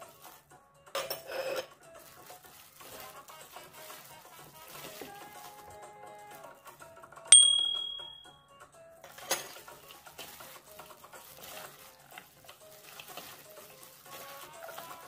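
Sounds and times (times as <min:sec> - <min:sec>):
quiet background music: 0:00.0 - 0:15.0
bell-like ding: 0:07.3 - 0:08.4.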